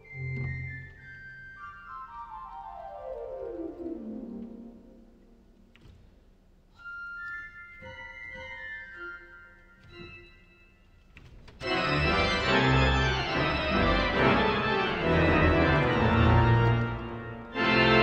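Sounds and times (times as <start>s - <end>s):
pipe organ playing: 0.0s - 5.5s, 6.8s - 11.0s, 11.6s - 18.0s.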